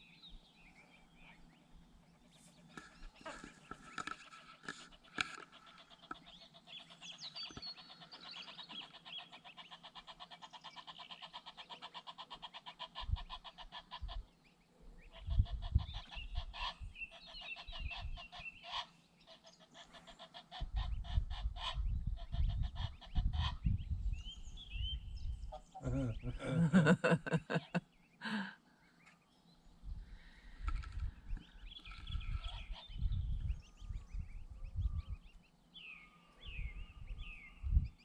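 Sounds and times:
geese honking: 7.8s - 14.3s
wind buffeting microphone: 15.1s - 17.1s, 17.7s - 18.3s, 20.6s - 25.6s, 29.8s - 35.4s, 36.4s - 38.0s.

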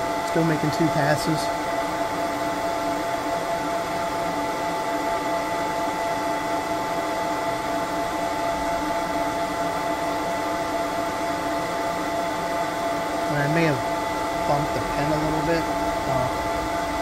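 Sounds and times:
laser engraver fan whir: 0.0s - 17.0s
humming tones: 13.4s - 17.0s.

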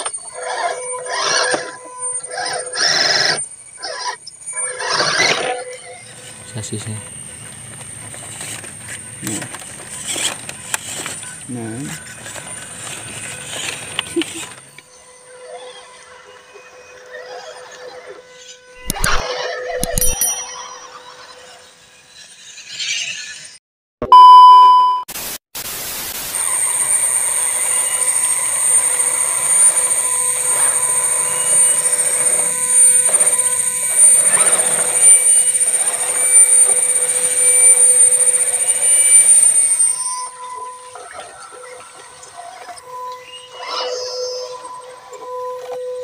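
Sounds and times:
electric motors whining: 0.0s - 23.5s, 26.1s - 46.0s
electronic beep: 18.8s - 21.6s, 24.0s - 25.1s, 26.4s - 45.7s.

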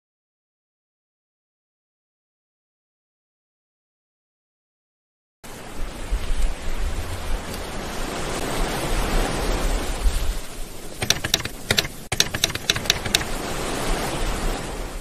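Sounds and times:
typewriter key clicks: 11.0s - 13.4s.

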